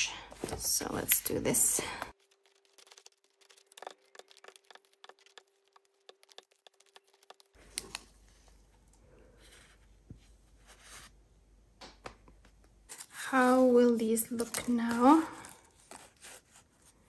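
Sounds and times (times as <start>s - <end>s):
paper page handled: 2.1s - 8.1s.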